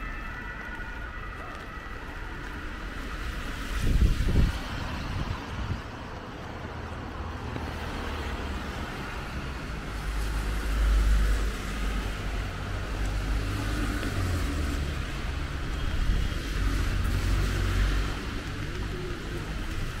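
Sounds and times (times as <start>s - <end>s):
wind rumble on microphone: 1.3s - 6.8s
cars passing with tyre hiss: 1.4s - 20.0s.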